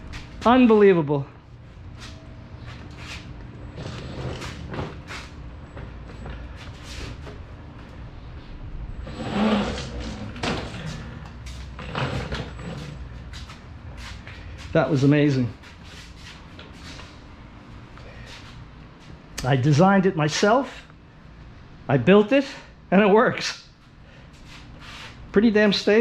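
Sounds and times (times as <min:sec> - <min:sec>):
low steady hum: 0:00.0 - 0:26.0
knocks clunks and rattles: 0:09.1 - 0:13.1.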